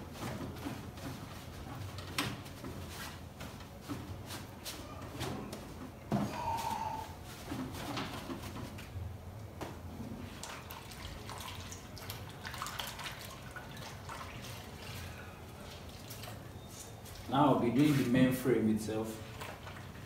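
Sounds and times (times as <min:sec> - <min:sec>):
small splashes and drips: 0:10.3 - 0:17.3, 0:19.2 - 0:20.0.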